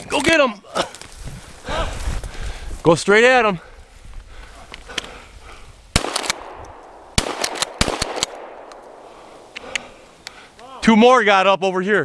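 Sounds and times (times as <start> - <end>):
shotgun shots with echo: 6.0 - 9.5.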